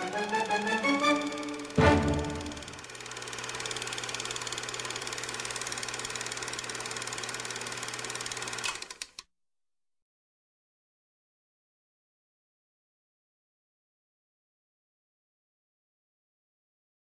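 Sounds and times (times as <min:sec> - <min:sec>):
film projector clattering: 0:00.0 - 0:09.2.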